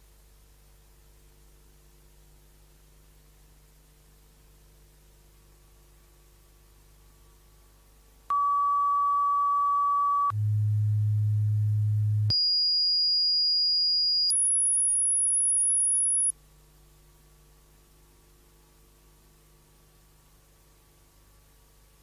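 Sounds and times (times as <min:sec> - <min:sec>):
electronic test tones: 0:08.3 - 0:16.3.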